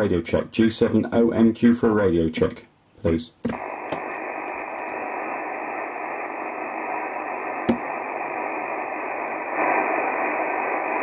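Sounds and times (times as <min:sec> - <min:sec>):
radio static hiss: 0:03.4 - 0:11.0.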